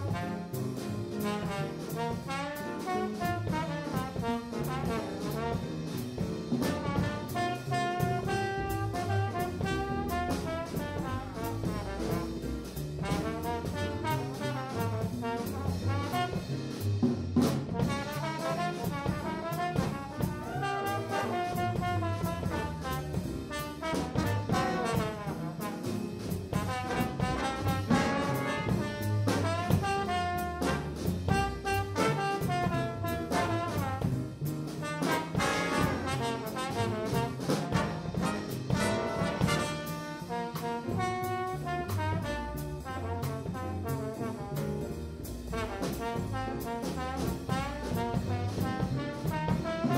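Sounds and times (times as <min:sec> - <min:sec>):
jazz big band playing: 0:00.0 - 0:49.9
trombone solo: 0:01.2 - 0:06.0, 0:06.6 - 0:16.6, 0:17.7 - 0:44.7, 0:45.5 - 0:49.9.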